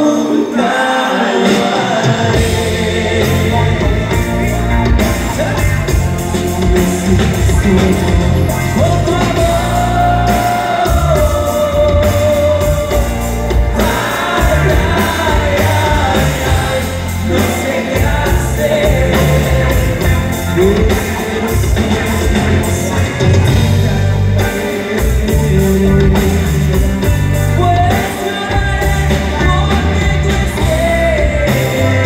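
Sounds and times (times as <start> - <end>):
bass and drums: 1.4 - 32.0.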